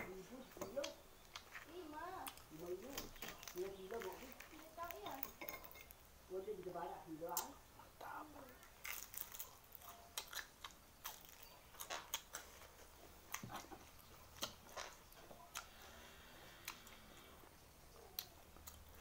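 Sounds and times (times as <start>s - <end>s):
chewing and lip smacks: 8.7s - 15.9s, 16.5s - 19.0s
biting into fried food: 8.7s - 17.2s.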